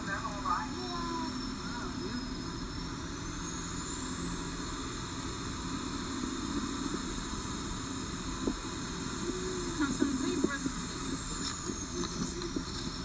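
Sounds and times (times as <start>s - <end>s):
faint high whine: 0.0s - 13.0s
bus engine and road rumble: 6.4s - 13.0s.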